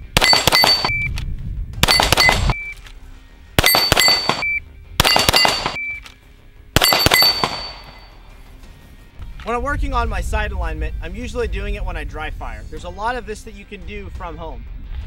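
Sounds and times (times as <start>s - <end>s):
pistol shots: 0.0s - 1.1s, 1.8s - 2.6s, 3.6s - 5.8s, 6.8s - 8.1s
steel plates ringing: 0.2s - 1.0s, 3.6s - 5.8s, 6.8s - 8.2s.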